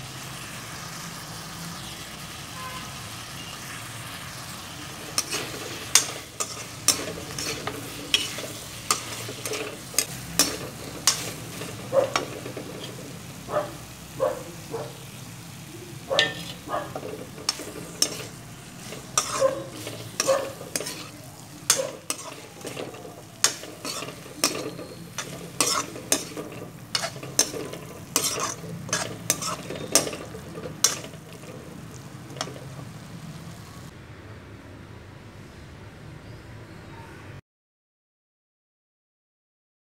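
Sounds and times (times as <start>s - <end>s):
frying sizzle: 0.0s - 34.0s
metal spatula scraping a pan: 3.4s - 13.9s, 16.1s - 33.7s.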